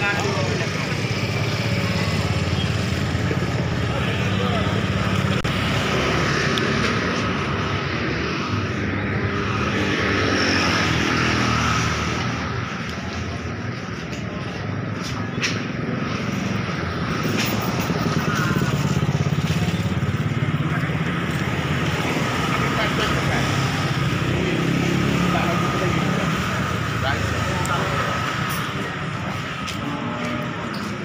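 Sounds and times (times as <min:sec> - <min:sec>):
small motorcycle engines running: 0:00.0 - 0:14.6, 0:15.2 - 0:31.0
motorcycle passing close: 0:17.0 - 0:28.8.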